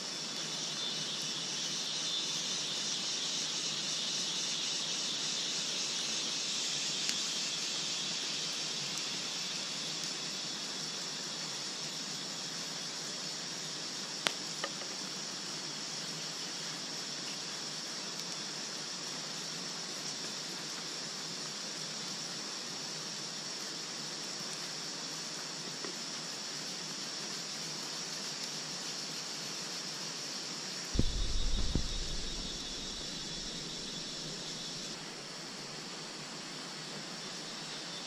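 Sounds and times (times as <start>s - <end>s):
campfire hissing and crackling: 0.0s - 38.0s
high insect buzzing: 31.0s - 35.0s
sharp fire cracks: 31.0s - 35.0s.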